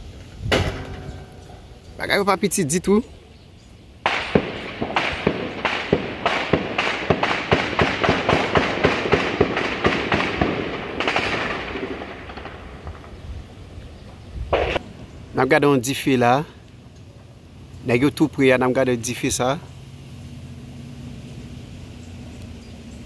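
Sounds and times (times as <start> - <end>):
heavy gunfire volley: 4.0 - 13.1, 14.5 - 14.9.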